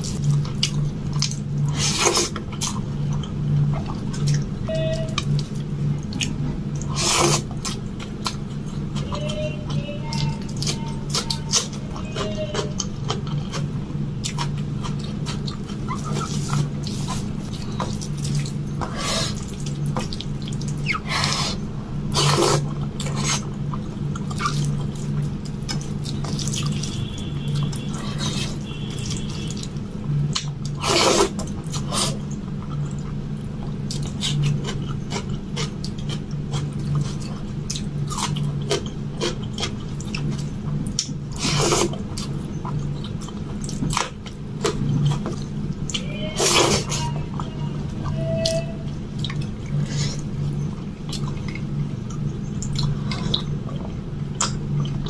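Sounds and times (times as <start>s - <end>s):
low hum: 0.0s - 55.0s
wet chewing and lip smacks: 31.4s - 41.2s, 48.9s - 55.0s.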